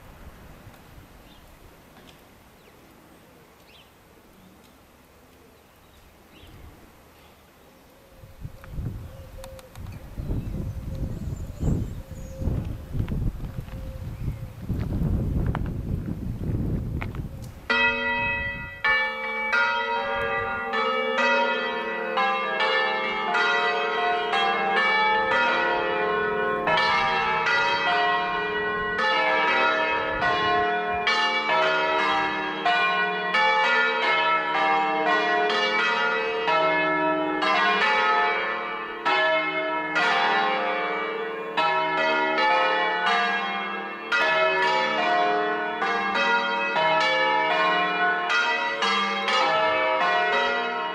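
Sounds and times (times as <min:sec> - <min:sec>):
church bells ringing: 0:17.0 - 0:50.9.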